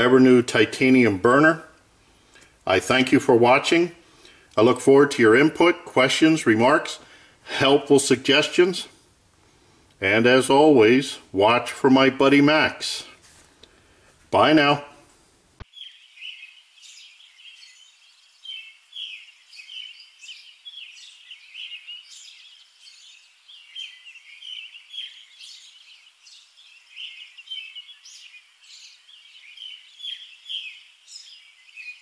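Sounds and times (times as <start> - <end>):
small birds chirping: 15.6 - 32.0.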